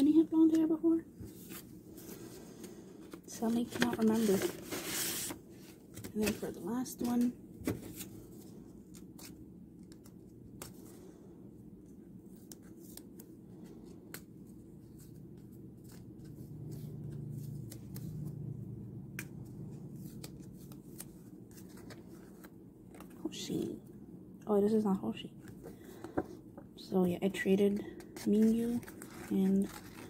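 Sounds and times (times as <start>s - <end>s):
paper and plastic rustling: 0.4s - 11.1s, 19.8s - 23.5s, 27.4s - 30.0s.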